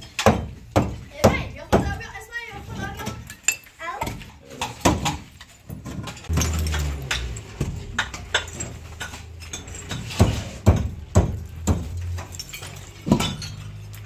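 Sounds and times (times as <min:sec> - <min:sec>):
low hum: 0:06.3 - 0:12.5.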